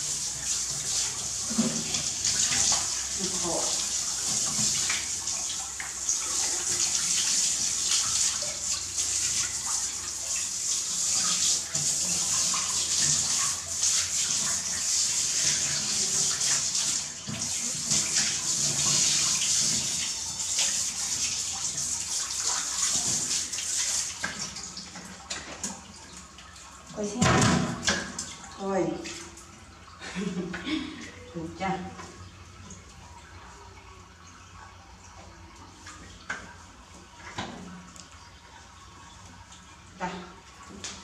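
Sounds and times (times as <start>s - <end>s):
water splashing on tiles: 0.0s - 29.5s.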